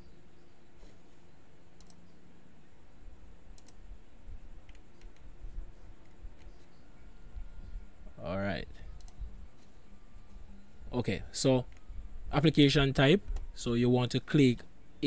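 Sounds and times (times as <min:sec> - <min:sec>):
faint low hum: 0:00.0 - 0:15.0
computer mouse clicks: 0:01.7 - 0:02.2, 0:03.5 - 0:03.9, 0:04.6 - 0:05.3, 0:06.0 - 0:06.7, 0:09.0 - 0:09.2.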